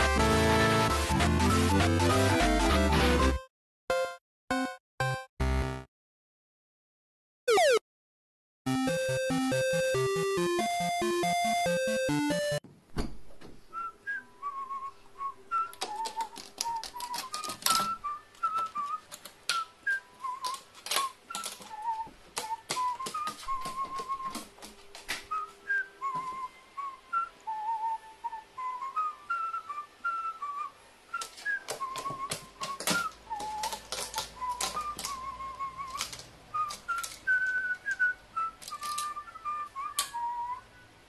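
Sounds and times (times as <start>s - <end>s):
whistled tune: 13.7s - 24.4s, 25.3s - 41.0s.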